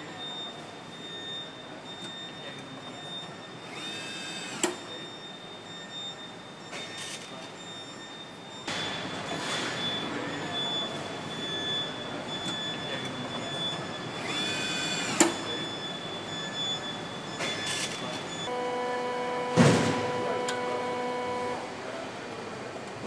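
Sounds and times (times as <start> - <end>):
thin electronic tones: 0.0 - 22.0
machine hum: 14.0 - 23.0
thump: 19.5 - 20.1
whirr ending in a click: 19.6 - 20.7.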